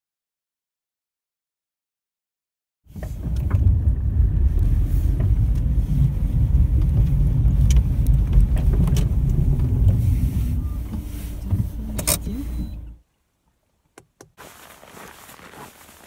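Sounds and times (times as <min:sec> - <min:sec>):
tyres rumbling on icy road: 0:02.9 - 0:13.0, 0:14.4 - 0:16.0.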